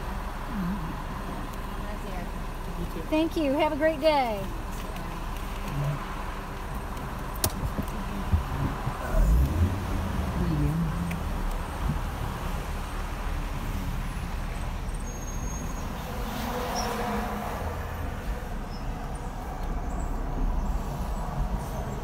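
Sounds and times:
car engine and road rumble: 0:00.0 - 0:22.0
street traffic outside: 0:00.0 - 0:22.0.

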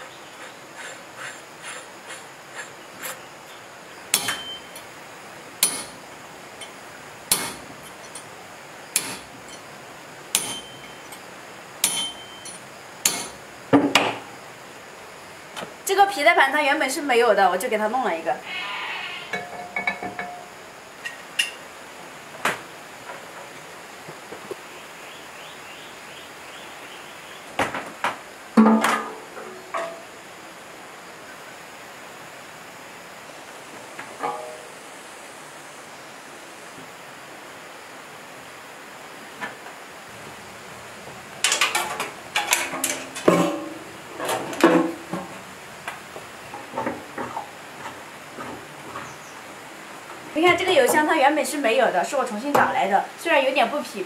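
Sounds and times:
metal clanks: 0:04.1 - 0:04.9, 0:05.6 - 0:06.0, 0:06.6 - 0:08.3, 0:09.0 - 0:09.7, 0:10.3 - 0:11.2, 0:11.8 - 0:13.4, 0:19.3 - 0:21.6, 0:28.6 - 0:30.1, 0:34.2 - 0:34.7, 0:41.4 - 0:45.4
hollow ringing metal clang: 0:04.2 - 0:04.9, 0:05.6 - 0:06.0, 0:10.4 - 0:11.2, 0:11.8 - 0:13.4, 0:19.3 - 0:20.6, 0:28.6 - 0:30.1, 0:34.2 - 0:34.7, 0:42.4 - 0:43.9
metal knocks and taps: 0:19.3 - 0:20.5.

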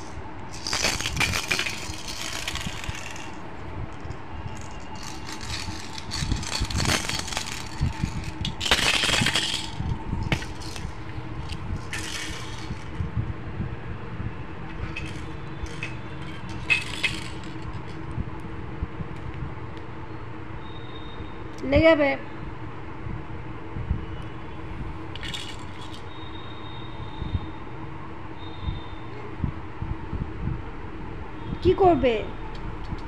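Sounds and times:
plastic toys clattering: 0:00.0 - 0:13.0, 0:14.7 - 0:18.0, 0:25.2 - 0:26.1.

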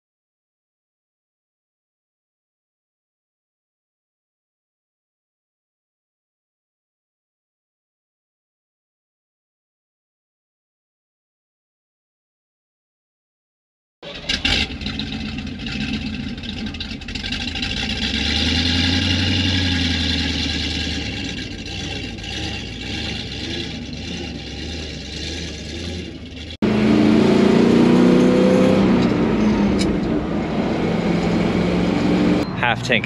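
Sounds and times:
road noise: 0:14.0 - 0:33.0
truck engine revving: 0:14.0 - 0:33.0
vehicle engine accelerating: 0:14.1 - 0:33.0.

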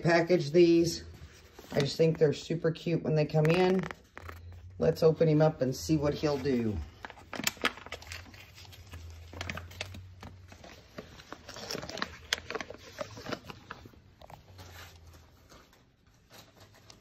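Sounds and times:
packaging rustling and clicking: 0:06.9 - 0:17.0.

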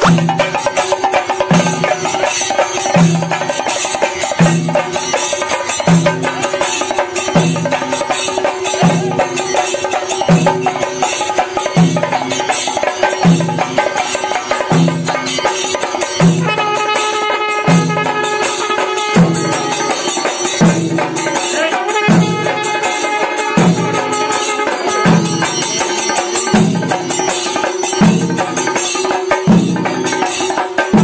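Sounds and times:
drums beaten with sticks: 0:00.0 - 0:31.0
hand cymbals jingling: 0:00.0 - 0:31.0.

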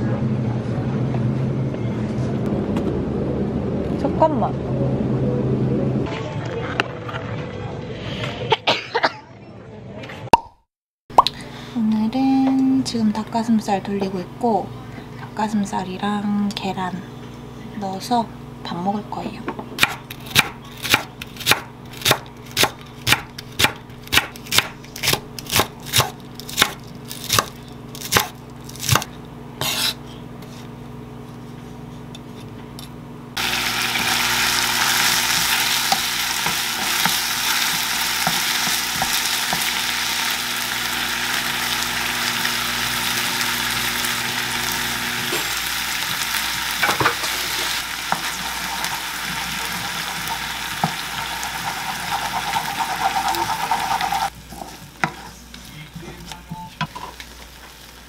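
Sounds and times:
knife chopping on wooden board: 0:19.8 - 0:30.0
chicken sizzling in frying pan: 0:33.4 - 0:54.3.

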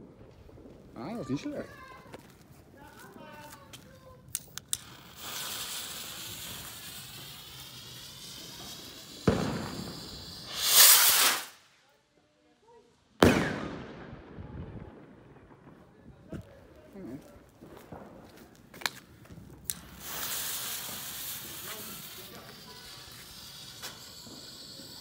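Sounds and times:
rocket whoosh and rushing hiss: 0:04.5 - 0:11.9, 0:19.6 - 0:25.0
fuse hissing: 0:04.6 - 0:11.6, 0:19.7 - 0:25.0
firework bang: 0:04.8 - 0:11.6, 0:13.2 - 0:16.6, 0:17.6 - 0:25.0.

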